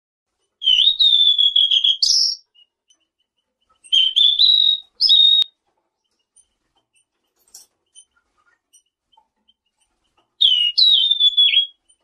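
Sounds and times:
songbird whistling: 0.6 - 2.8, 3.8 - 5.6, 10.4 - 12.0.

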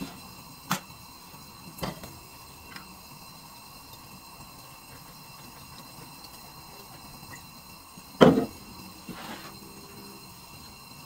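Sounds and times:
faint steady hum: 0.0 - 11.0
kitchenware knocking frying pan: 8.2 - 8.6.

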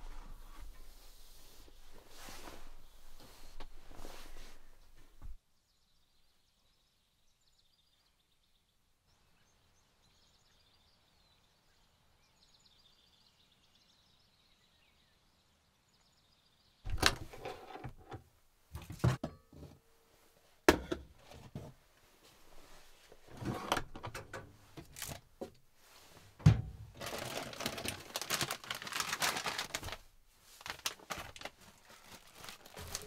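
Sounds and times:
faint high birdsong: 5.4 - 17.8.

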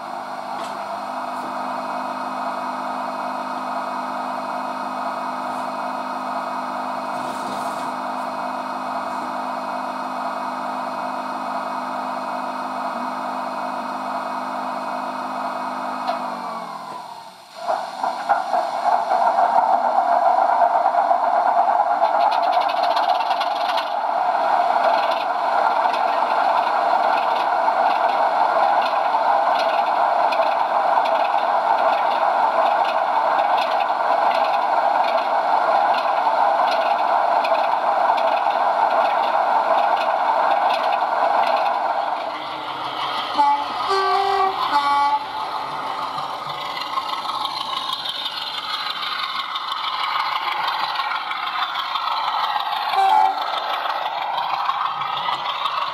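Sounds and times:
diesel engine through small speaker: 0.0 - 18.0, 42.2 - 55.9.

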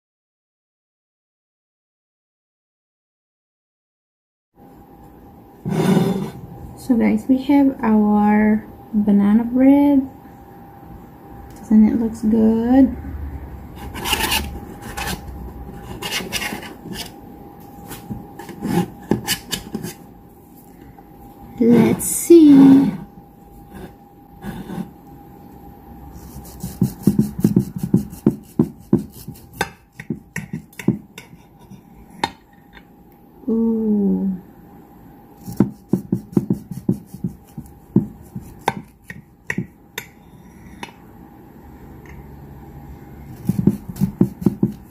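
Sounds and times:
knife sawing through bread: 13.8 - 15.2, 15.8 - 17.1, 26.2 - 29.6
knife scraping metal pan: 13.8 - 17.2.

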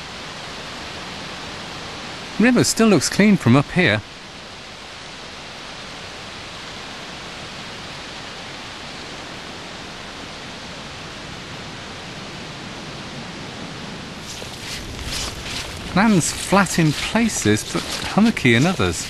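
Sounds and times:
steady outdoor rushing noise: 14.1 - 19.0.

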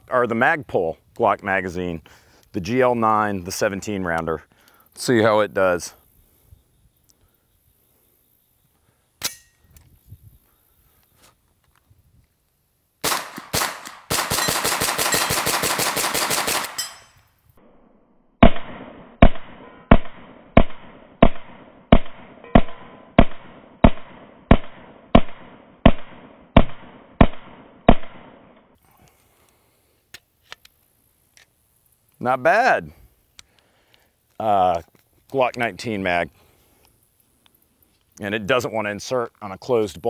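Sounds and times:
carbine gunshots: 13.0 - 17.1.

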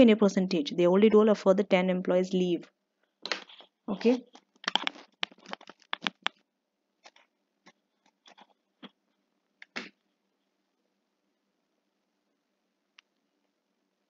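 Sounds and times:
small sharp clicks and taps: 4.3 - 6.4.

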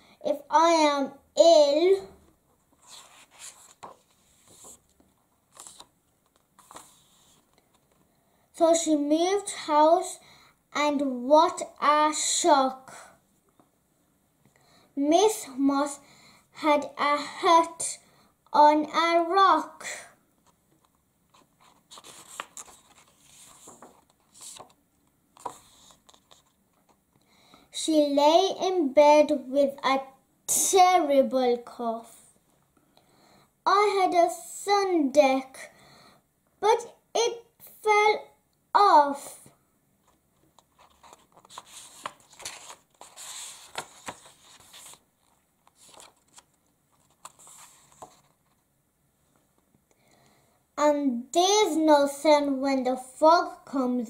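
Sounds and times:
book pages turning: 2.6 - 8.0, 20.4 - 27.0, 40.0 - 48.6.

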